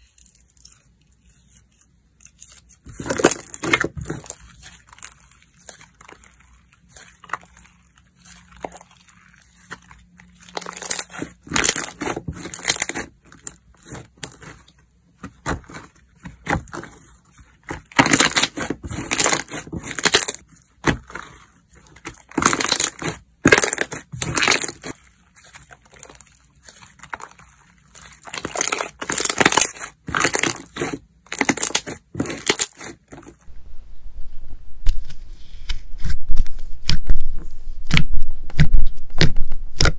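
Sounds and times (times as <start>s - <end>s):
slime crackling and popping: 2.4s - 14.6s, 17.6s - 21.4s, 22.0s - 33.0s.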